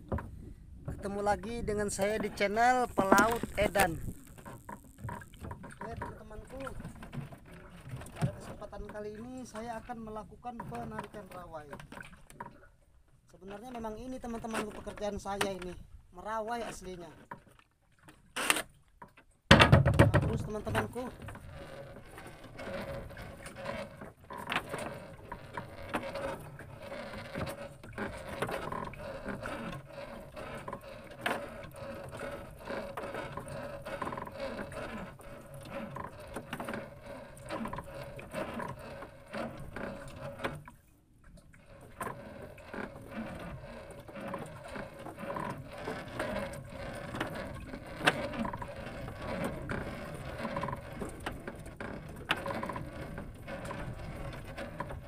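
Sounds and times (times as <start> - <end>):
fishing line and hooks rattling: 1.8 - 7.0.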